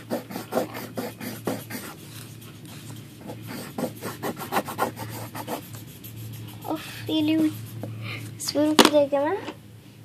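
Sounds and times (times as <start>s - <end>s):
pencil scratching on paper: 0.0s - 7.9s.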